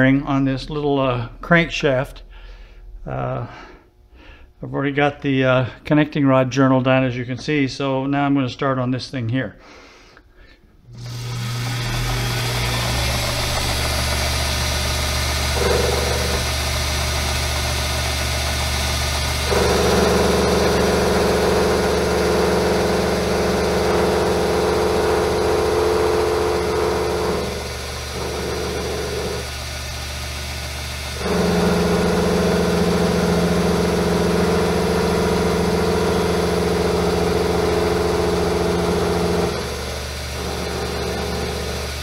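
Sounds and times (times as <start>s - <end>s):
metal lathe humming: 10.9s - 42.0s
tool bit cutting steel: 11.0s - 42.0s.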